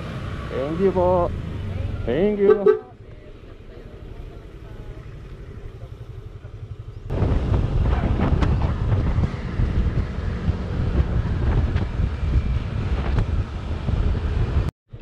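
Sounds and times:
motorcycle engine rumble: 0.0s - 15.0s
wind buffeting on microphone: 7.1s - 14.7s.

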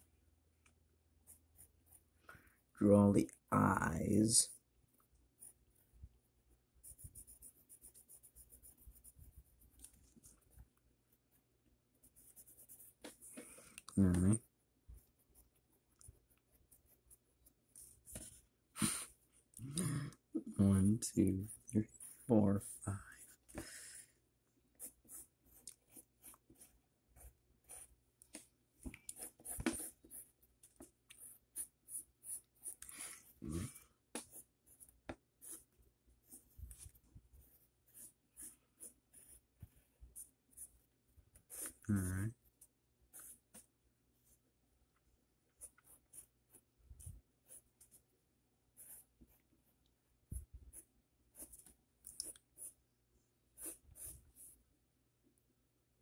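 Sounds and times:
pencil scratching on paper: 1.2s - 2.2s, 4.5s - 13.7s, 14.3s - 18.4s, 21.4s - 23.6s, 24.8s - 28.5s, 29.1s - 33.4s, 34.1s - 41.9s, 43.1s - 44.4s, 45.5s - 48.0s, 48.7s - 52.8s, 53.5s - 54.6s.

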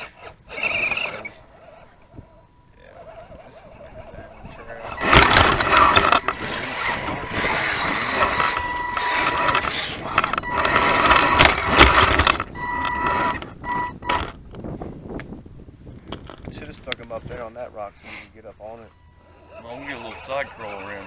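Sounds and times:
electric motor whining: 0.0s - 14.4s, 18.7s - 21.0s
loose rock crunching under tyres: 4.6s - 14.7s.

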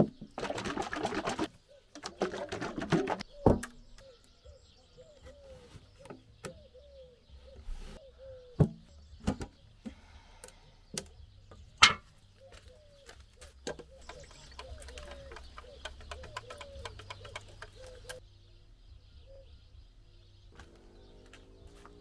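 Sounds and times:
metal paint can rattling: 0.0s - 3.3s, 13.6s - 18.2s
bird calling: 3.2s - 9.4s, 11.8s - 18.2s.

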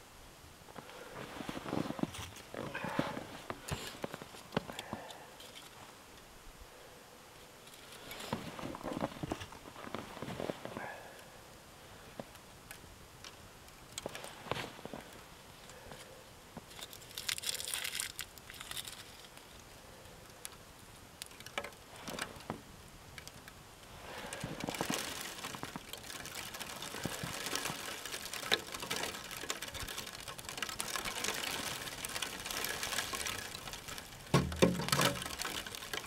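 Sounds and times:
fire crackling: 0.5s - 36.0s
twigs snapping and rustling: 12.1s - 16.0s, 16.6s - 20.6s, 21.2s - 36.0s.

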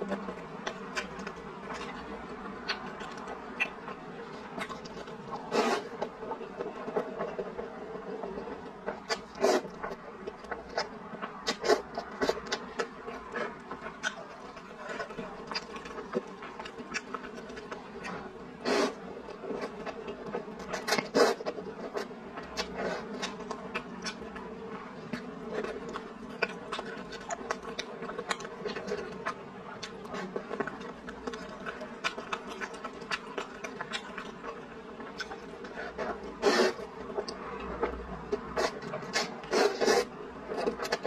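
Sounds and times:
chewing with wet mouth clicks: 0.1s - 4.0s, 4.6s - 7.6s, 8.2s - 18.3s, 19.2s - 41.0s
slurping noodles: 5.4s - 6.1s, 8.4s - 9.8s, 18.6s - 19.8s, 20.7s - 23.4s, 35.7s - 36.9s, 38.5s - 41.0s.

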